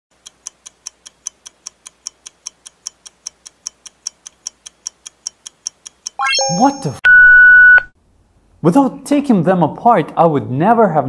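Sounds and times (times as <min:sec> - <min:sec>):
fast clock ticking: 0:00.1 - 0:06.2.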